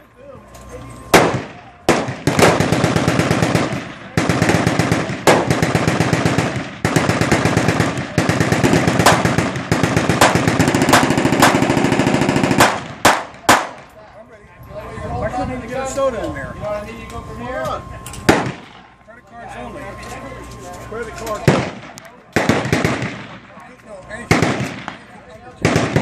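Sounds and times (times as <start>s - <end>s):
machine guns firing bursts: 1.1s - 13.8s, 21.4s - 23.5s, 24.3s - 26.0s
sharp gunshots: 1.1s - 13.9s, 18.2s - 19.0s, 21.4s - 23.6s, 24.2s - 26.0s.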